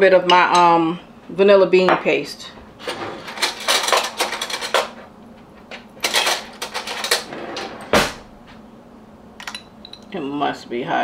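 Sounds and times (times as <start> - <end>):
spoon and jar clinking: 9.4 - 10.1.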